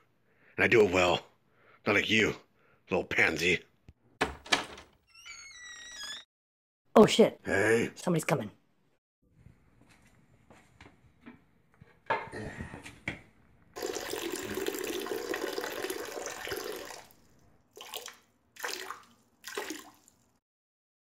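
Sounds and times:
urine stream splashing into toilet: 13.8 - 20.4.

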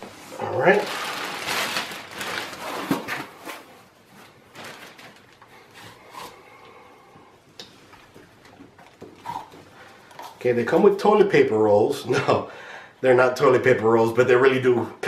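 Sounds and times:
foam sheet rustling: 0.0 - 6.0
plastic wrap rustling: 0.0 - 6.5.

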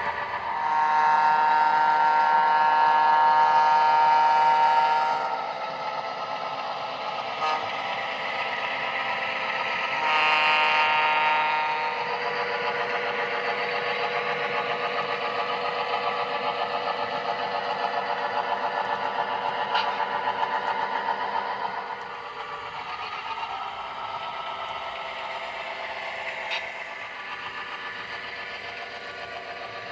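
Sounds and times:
pulsing diesel engine rumble: 0.0 - 29.9
multi-tone diesel horn: 0.4 - 5.5, 7.4 - 7.8, 9.8 - 12.6.

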